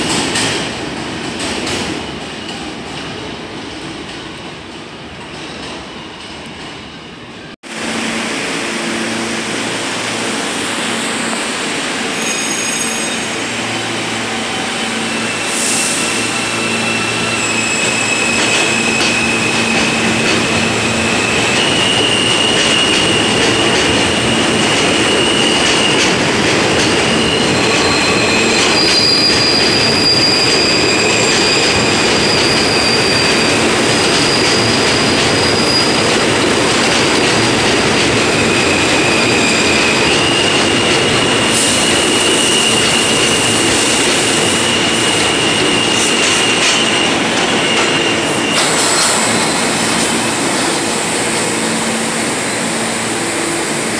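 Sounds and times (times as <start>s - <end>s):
subway train wheels rumbling: 0.0s - 53.9s
high wheel squeal: 10.4s - 26.2s, 26.9s - 36.1s, 38.3s - 52.2s.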